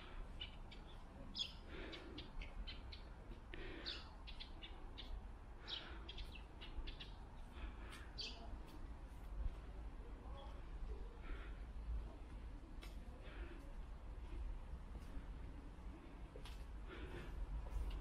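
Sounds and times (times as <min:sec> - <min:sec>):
small birds chirping: 0:00.0 - 0:09.2.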